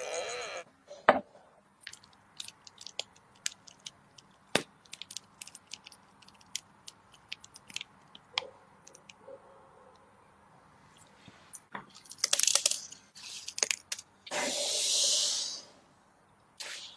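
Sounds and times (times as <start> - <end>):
piping bag crinkling and squishing: 1.8 - 9.2, 12.0 - 14.1.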